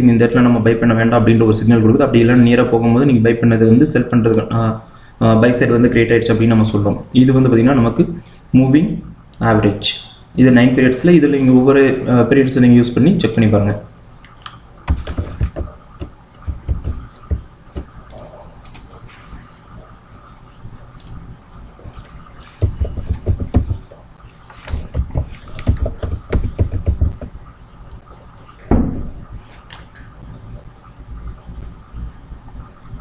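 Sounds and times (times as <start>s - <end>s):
computer keyboard typing: 14.9s - 19.0s, 21.9s - 23.9s, 24.7s - 27.3s.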